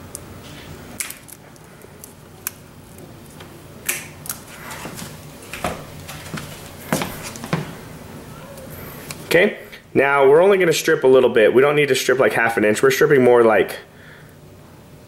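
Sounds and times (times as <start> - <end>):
wire strippers clicking and snipping: 1.0 - 4.5.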